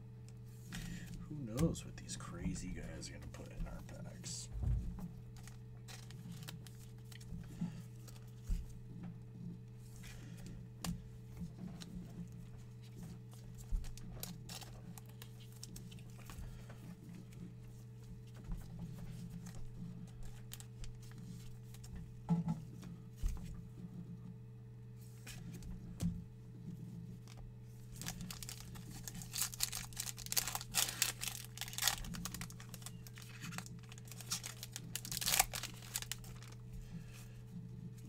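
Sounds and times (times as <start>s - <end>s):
steady low hum: 0.0s - 38.0s
cards rustling and clicking: 5.4s - 8.7s, 12.9s - 16.8s, 27.2s - 36.7s.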